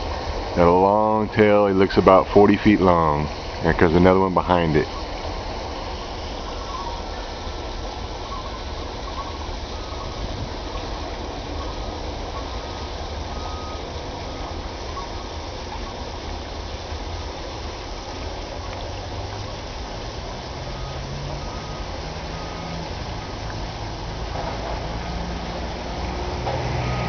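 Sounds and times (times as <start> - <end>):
even hiss: 0.0 - 27.0.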